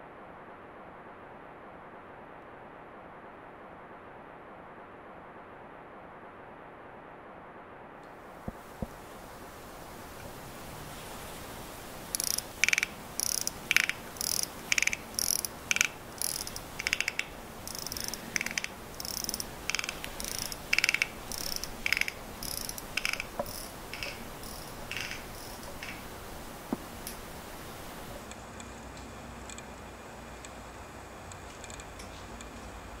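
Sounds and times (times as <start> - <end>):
ratchet clicking of key winding: 12.1 - 26.0.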